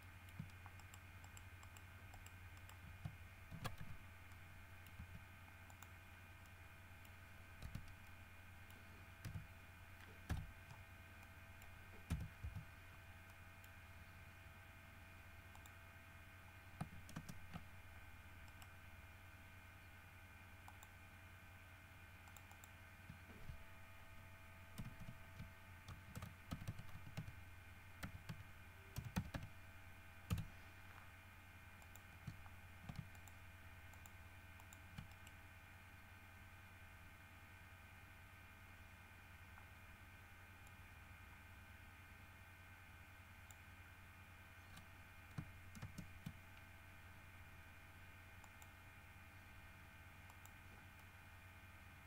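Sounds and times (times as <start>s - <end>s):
steady low hum: 0.0s - 52.0s
keyboard and mouse clicks: 0.3s - 13.8s, 16.8s - 17.7s, 18.4s - 18.7s, 20.6s - 21.0s, 22.2s - 23.6s, 24.8s - 27.4s, 28.0s - 29.5s, 30.3s - 30.5s, 31.8s - 35.4s, 44.6s - 46.7s, 50.3s - 51.1s.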